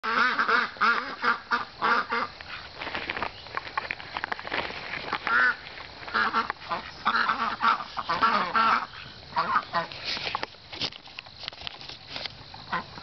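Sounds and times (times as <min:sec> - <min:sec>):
ducks quacking: 0:00.0 - 0:02.8, 0:05.2 - 0:10.0, 0:12.7 - 0:13.0.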